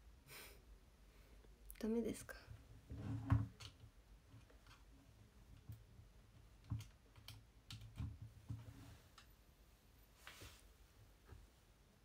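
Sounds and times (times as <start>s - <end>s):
small objects clicking on desk: 5.6s - 8.6s.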